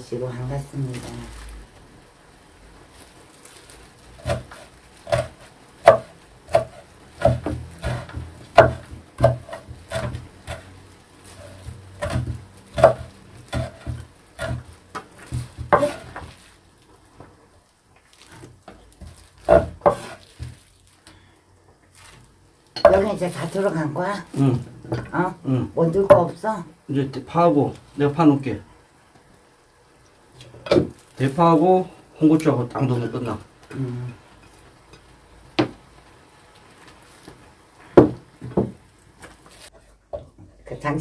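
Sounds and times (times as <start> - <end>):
knife chopping on wooden board: 4.2 - 10.7, 11.4 - 16.3, 19.0 - 20.6.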